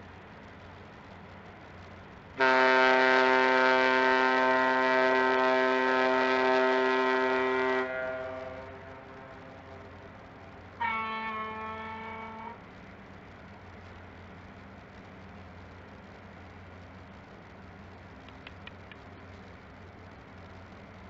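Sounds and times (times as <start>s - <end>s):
horn echo: 2.4s - 9.4s
ship's horn blast: 2.4s - 9.6s, 10.8s - 12.6s.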